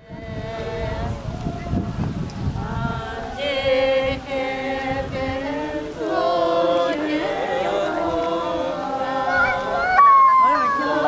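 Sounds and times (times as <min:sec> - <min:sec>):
group of voices chanting: 0:00.0 - 0:11.0.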